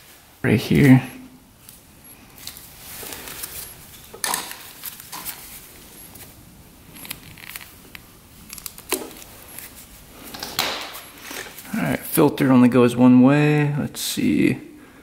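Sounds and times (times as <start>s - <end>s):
plastic clicks and rustling: 2.4s - 5.5s.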